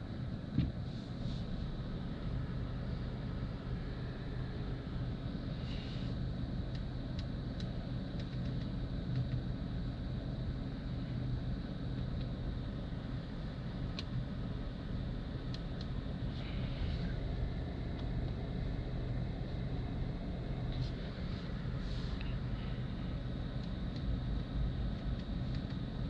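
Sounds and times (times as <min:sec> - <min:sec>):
car cabin hum at idle: 0:00.4 - 0:26.0.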